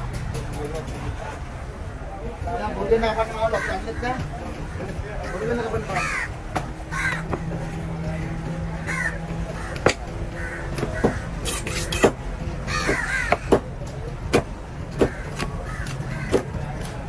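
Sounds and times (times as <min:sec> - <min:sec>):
crows cawing: 0:03.4 - 0:07.6, 0:08.2 - 0:11.5, 0:12.6 - 0:13.6, 0:14.9 - 0:16.9.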